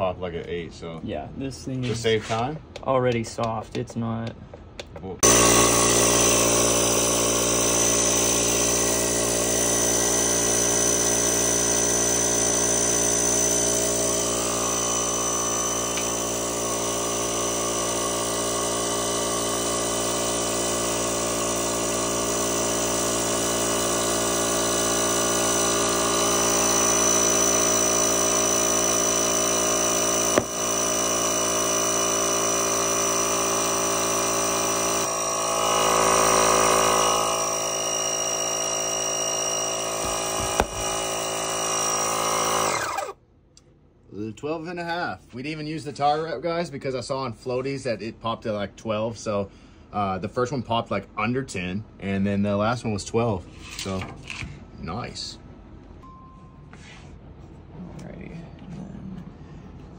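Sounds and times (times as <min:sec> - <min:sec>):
air pump motor running: 0:05.2 - 0:43.2
tire bead popping: 0:18.0 - 0:31.4, 0:39.8 - 0:41.1.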